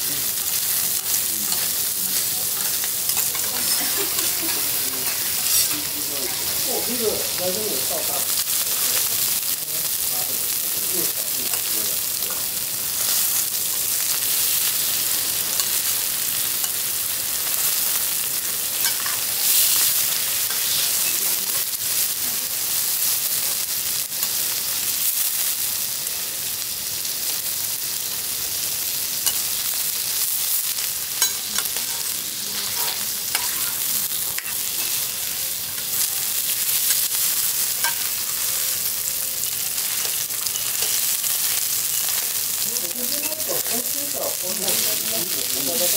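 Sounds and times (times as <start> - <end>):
steak sizzling on a griddle: 0.0 - 45.9
knife and spatula scraping steel: 1.5 - 6.6, 18.8 - 21.2, 31.2 - 35.1, 37.8 - 38.6, 39.8 - 42.3.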